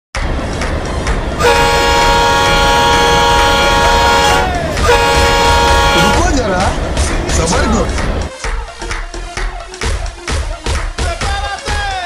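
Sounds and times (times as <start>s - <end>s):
steady low rumble: 0.2s - 8.3s
locomotive air horn: 1.4s - 6.4s.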